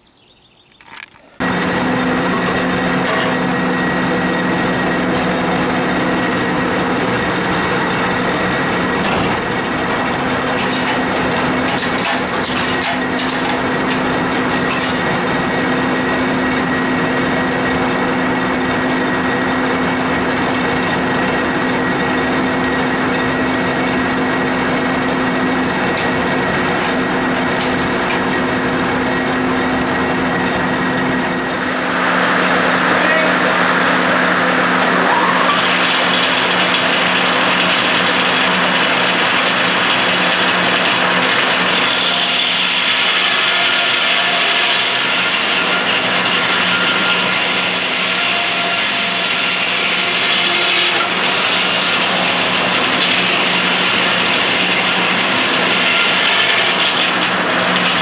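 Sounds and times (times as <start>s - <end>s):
sawmill machinery humming: 0.9s - 58.0s
metal knocks and clanks: 8.8s - 14.0s.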